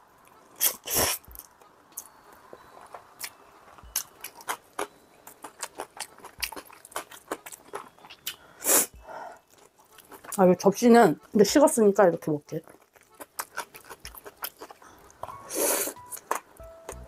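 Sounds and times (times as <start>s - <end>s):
wet chewing: 2.8s - 10.5s, 12.2s - 17.0s.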